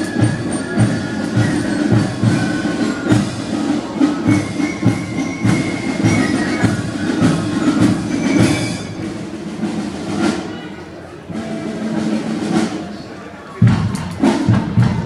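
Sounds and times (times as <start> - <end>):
steady drum beat: 0.0 - 10.5, 13.6 - 15.0
band music: 0.0 - 15.0.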